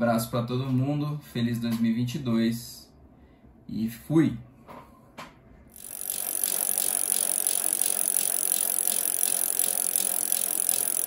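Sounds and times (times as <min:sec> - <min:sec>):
bike rattle and ticks: 0:05.8 - 0:11.0.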